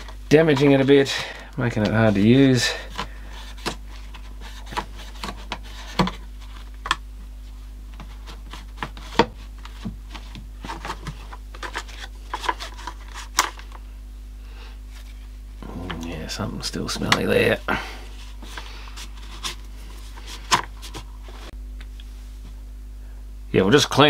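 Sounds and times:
low hum: 12.9s - 23.6s.

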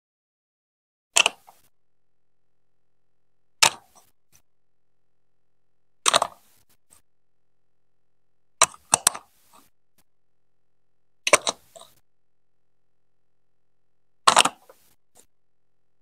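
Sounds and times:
plastic bricks clicking together: 1.2s - 1.6s, 3.6s - 4.1s, 6.0s - 6.4s, 8.6s - 9.6s, 11.3s - 12.0s, 14.3s - 14.8s.

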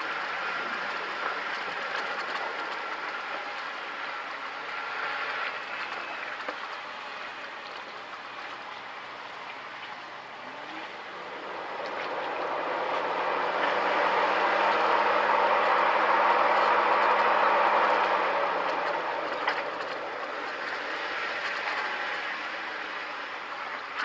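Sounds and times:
car engine running: 10.8s - 24.0s.

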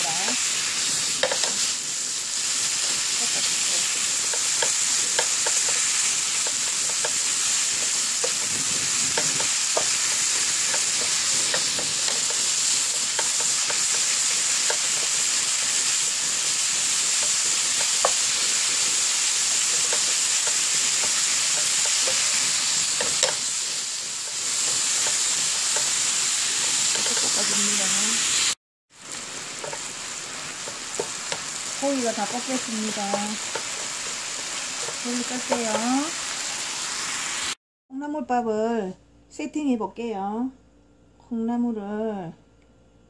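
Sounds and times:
beef sizzling in frying pan: 0.0s - 37.6s
wooden spatula scraping pan: 19.6s - 27.8s.

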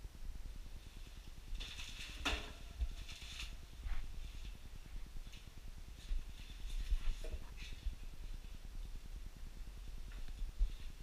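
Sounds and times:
shuffling and knocking footsteps: 2.6s - 8.5s.

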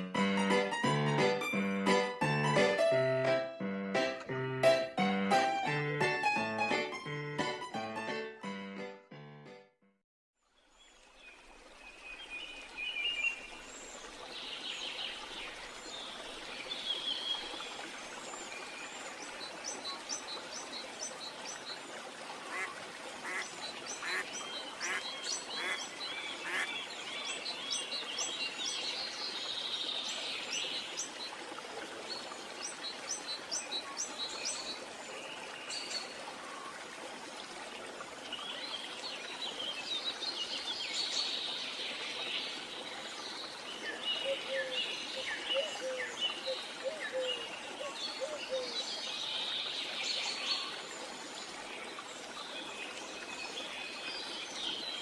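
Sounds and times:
steady outdoor hiss: 10.6s - 55.0s
birds calling and chirping: 22.5s - 26.7s.

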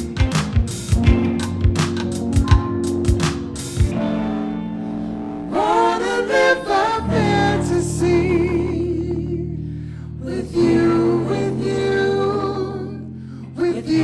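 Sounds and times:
live band playing: 0.0s - 6.5s
person singing: 4.9s - 14.0s.

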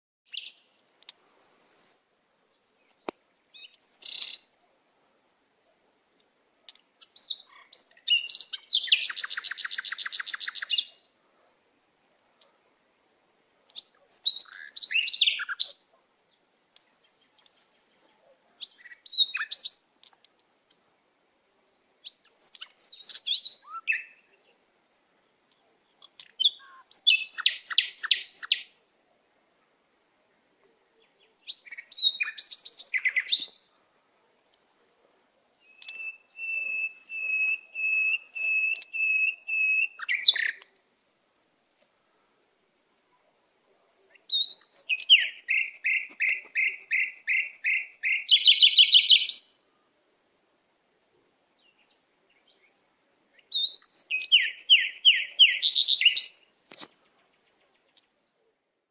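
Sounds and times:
songbird singing: 0.2s - 58.9s.

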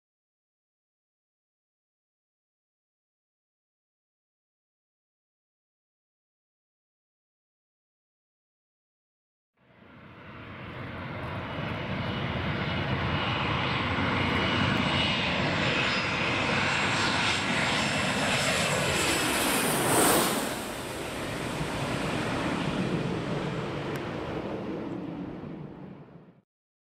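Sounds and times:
jet airliner landing roar: 9.6s - 26.4s.

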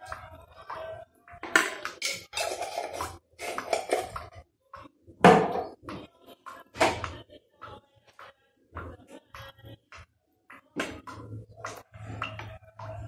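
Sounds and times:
spoon and dishes clinking: 1.4s - 4.4s.

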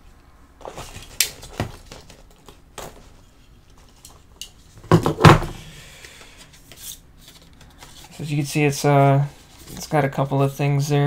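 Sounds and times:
paper and card crinkling: 6.4s - 10.3s.

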